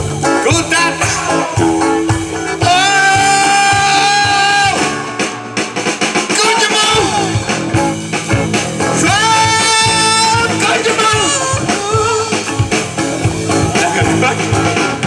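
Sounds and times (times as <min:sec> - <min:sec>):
drum kit: 0:00.0 - 0:15.0
electric guitar: 0:00.0 - 0:15.0
person singing: 0:00.2 - 0:05.2, 0:06.3 - 0:07.7, 0:08.9 - 0:12.6, 0:13.4 - 0:15.0.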